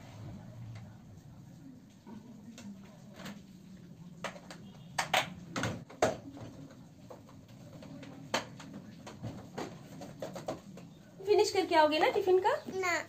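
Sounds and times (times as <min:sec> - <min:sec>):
faint low hum: 0:00.0 - 0:11.9.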